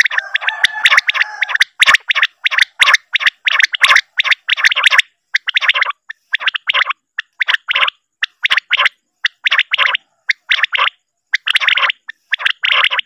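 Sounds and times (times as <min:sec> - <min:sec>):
quail song: 0:00.0 - 0:13.0.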